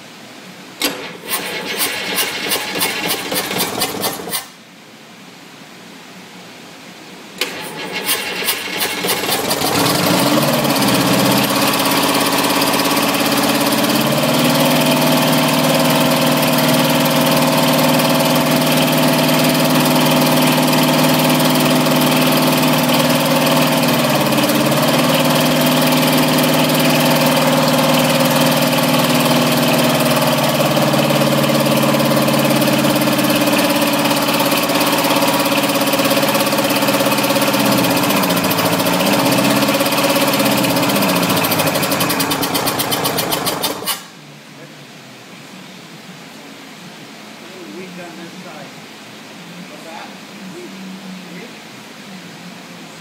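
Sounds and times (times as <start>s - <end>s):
diesel engine running: 7.4s - 44.1s.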